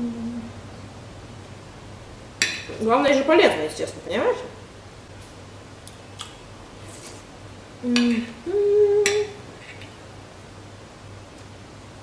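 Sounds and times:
woman humming mm-mm: 0.0s - 0.6s, 7.8s - 9.5s.

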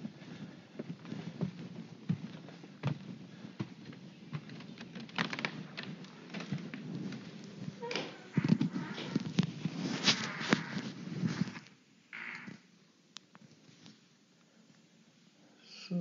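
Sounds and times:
footsteps: 0.0s - 11.8s.

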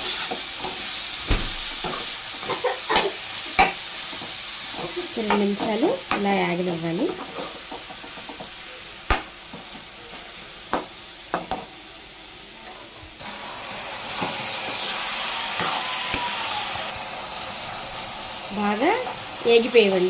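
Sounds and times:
spatula clinking and scraping pan: 0.0s - 1.0s, 1.6s - 6.4s, 7.0s - 8.5s
vegetables sizzling in a pan: 0.0s - 20.0s.

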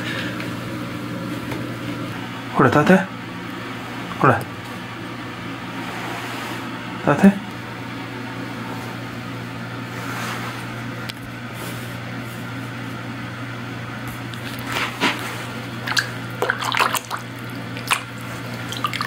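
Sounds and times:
steady low hum: 0.0s - 19.0s
water splashing in a basin: 15.8s - 19.0s.

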